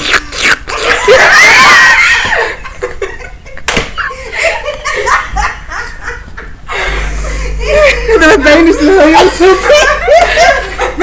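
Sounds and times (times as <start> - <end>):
hysterical shrieking laughter: 0.6 - 2.7
sharp slap: 3.6 - 4.0.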